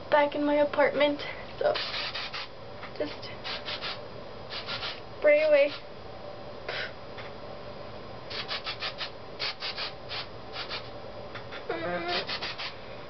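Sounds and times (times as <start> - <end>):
hairspray spritzing: 1.8 - 2.5, 3.4 - 5.0, 8.3 - 10.9, 12.1 - 12.7.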